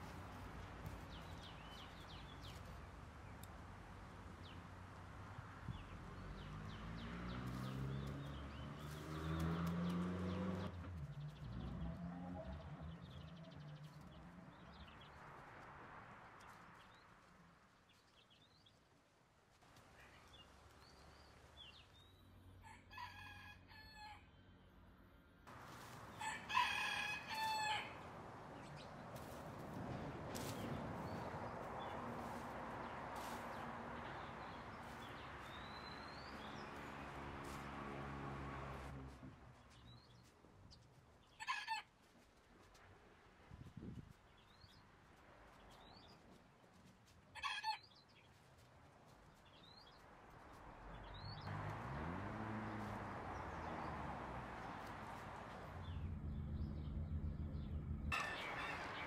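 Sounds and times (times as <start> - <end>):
faint outdoor background: 0.0 - 59.0
rooster crowing: 22.6 - 24.3, 26.2 - 28.0, 58.1 - 59.0
low hum rising in pitch: 55.8 - 58.2.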